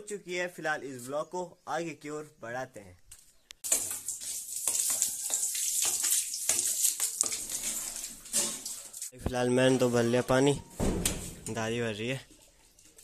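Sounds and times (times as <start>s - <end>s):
water gushing into plastic drum: 3.7s - 8.8s.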